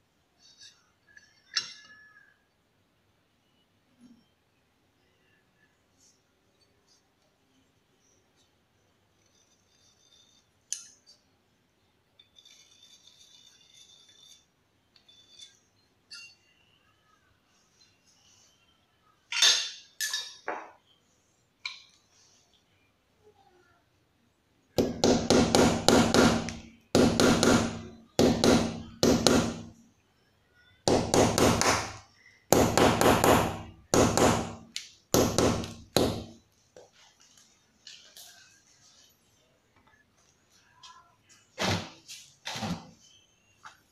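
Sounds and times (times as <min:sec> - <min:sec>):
pencil scratching: 0:12.4 - 0:14.4
hammer striking nail: 0:24.8 - 0:29.7, 0:30.9 - 0:36.4.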